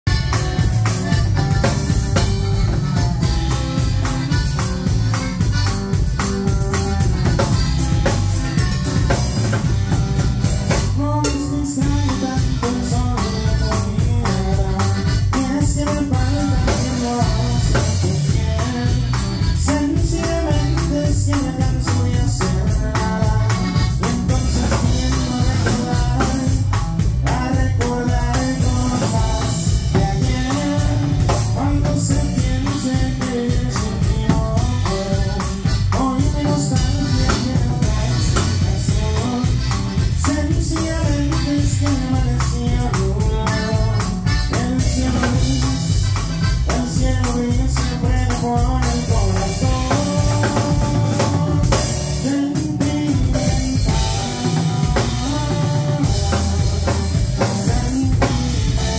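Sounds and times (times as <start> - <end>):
accordion melody: 0.0 - 58.9
bass: 0.0 - 58.9
drum kit beat: 0.0 - 58.9
percussion: 0.1 - 58.9.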